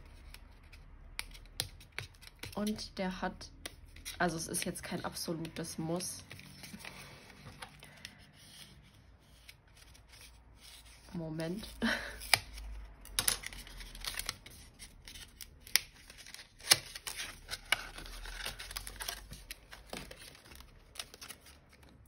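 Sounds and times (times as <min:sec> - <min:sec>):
plastic crinkling and rustling: 0:09.5 - 0:22.0.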